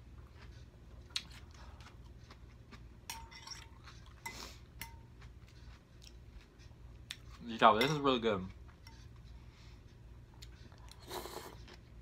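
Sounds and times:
fork clinking on glass bowl: 3.1 - 5.0, 7.7 - 8.1.

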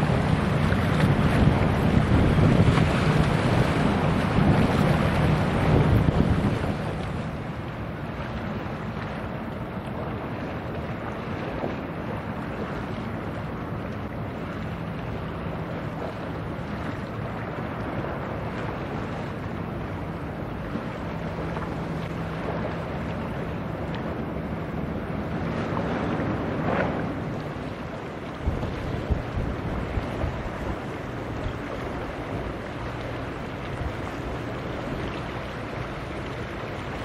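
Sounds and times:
wind rushing over microphone: 0.0 - 8.2, 24.2 - 35.8
low ship engine drone: 0.0 - 37.0.

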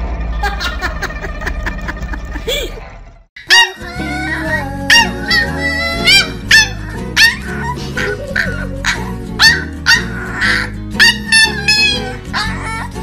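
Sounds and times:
background music: 3.4 - 13.0
puppy yipping: 3.4 - 13.0.

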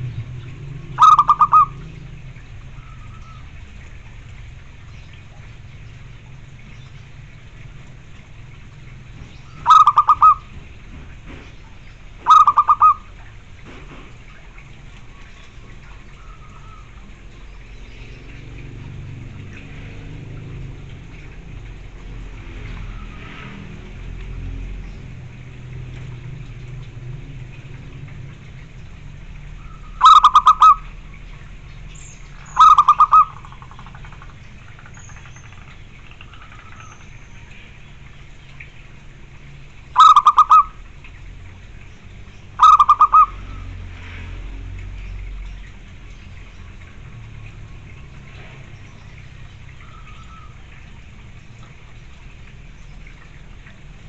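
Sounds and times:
dove cooing: 0.9 - 2.1, 9.6 - 10.5, 12.2 - 13.1, 29.9 - 30.9, 32.5 - 33.6, 40.0 - 40.7, 42.6 - 43.6.

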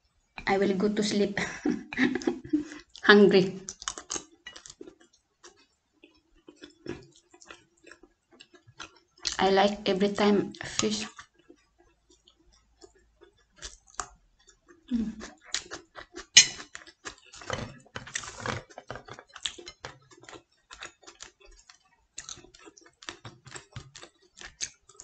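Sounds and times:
chewing and mouth sounds: 3.6 - 9.4, 11.1 - 25.0.

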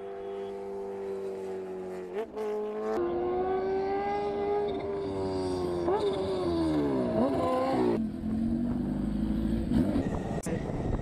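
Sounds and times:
lower steady engine note: 0.0 - 3.5
high-revving racing engine: 0.0 - 11.0.

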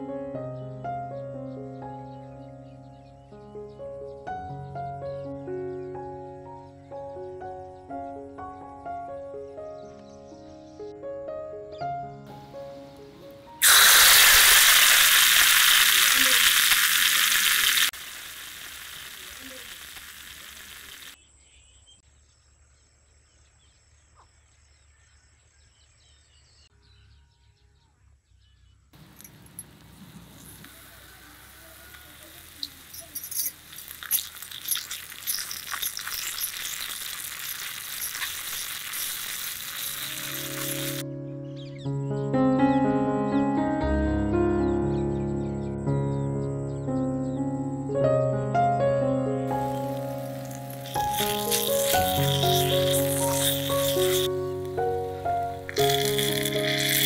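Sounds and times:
oil sizzling in a pot: 13.6 - 21.2, 30.3 - 41.0, 49.5 - 57.0
stirring clicks: 32.4 - 41.0, 49.6 - 54.8, 55.6 - 57.0.

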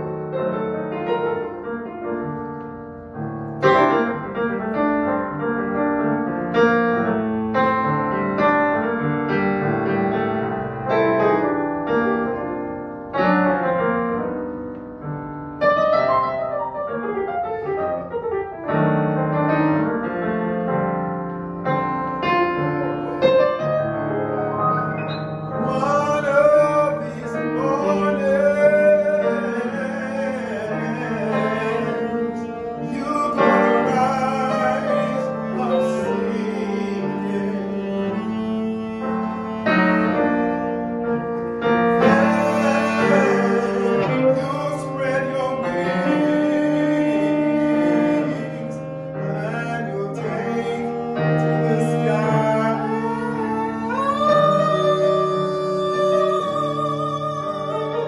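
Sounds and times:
digital piano playing: 0.0 - 58.0
man singing with vibrato: 25.5 - 39.6, 41.9 - 58.0.

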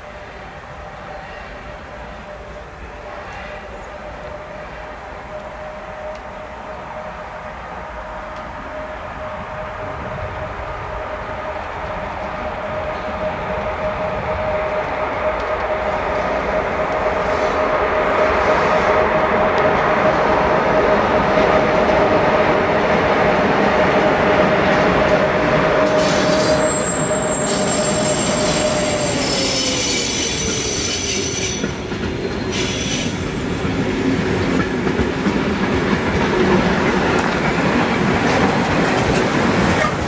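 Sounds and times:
train rumbling past: 0.0 - 40.0
wheel squeals: 25.8 - 33.2.

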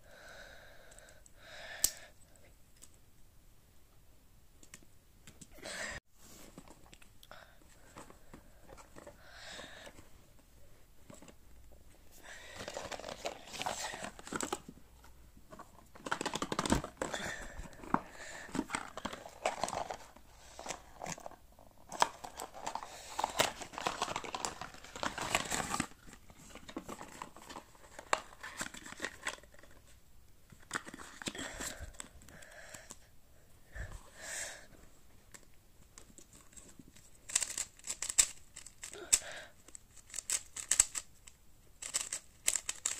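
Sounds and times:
packaging crinkling and tearing: 12.5 - 14.6, 15.9 - 29.7.

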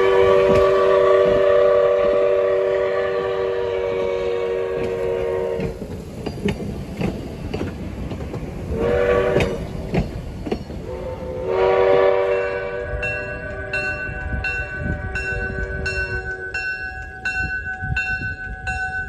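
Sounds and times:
wheels clicking over rail joints: 0.0 - 2.6, 4.0 - 19.0
train air horn blasts: 0.0 - 5.8, 8.7 - 9.7, 10.8 - 16.6.

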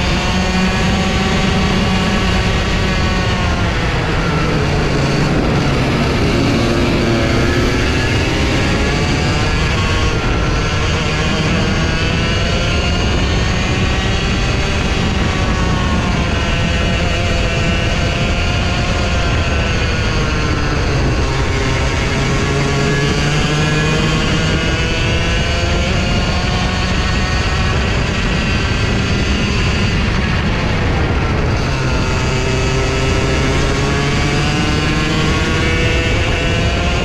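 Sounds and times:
go-kart engine at high revs: 0.0 - 37.0.

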